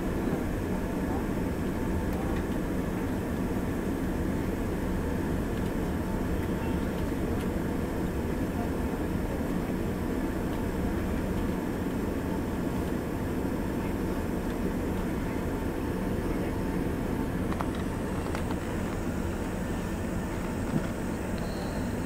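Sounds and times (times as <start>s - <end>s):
jet engines humming: 0.0s - 22.0s.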